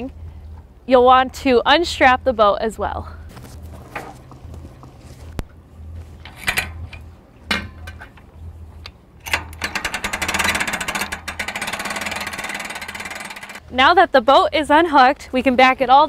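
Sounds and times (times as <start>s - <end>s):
metal clanks: 6.2s - 8.3s, 9.2s - 13.6s
hand-crank winch clicking: 9.2s - 13.6s.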